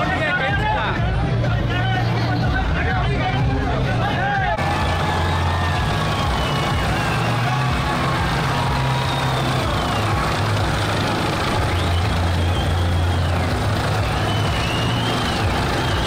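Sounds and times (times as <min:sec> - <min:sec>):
helicopter engine and rotor hum: 0:04.6 - 0:16.0
faint high whistling tones: 0:11.5 - 0:16.0.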